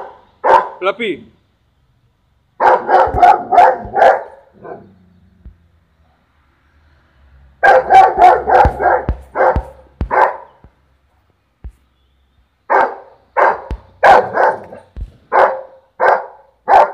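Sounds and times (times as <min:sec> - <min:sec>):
dog barking: 0:00.0 - 0:00.8, 0:02.6 - 0:05.0, 0:07.6 - 0:10.6, 0:12.7 - 0:16.9.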